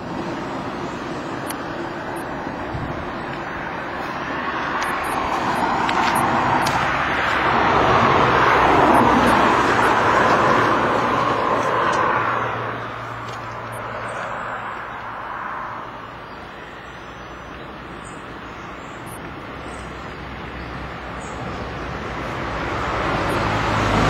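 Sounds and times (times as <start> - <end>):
car driving past: 3.2 - 15.9, 21.6 - 24.0.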